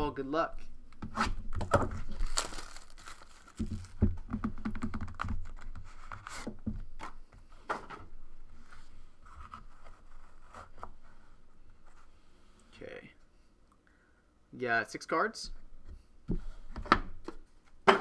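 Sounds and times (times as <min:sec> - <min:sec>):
plastic wrap crinkling and tearing: 0:01.8 - 0:04.2.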